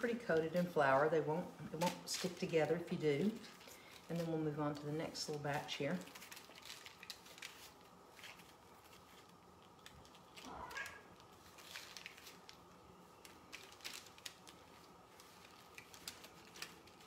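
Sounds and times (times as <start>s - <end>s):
aluminium foil crinkling: 0.0s - 17.0s
cat meow: 10.4s - 11.2s.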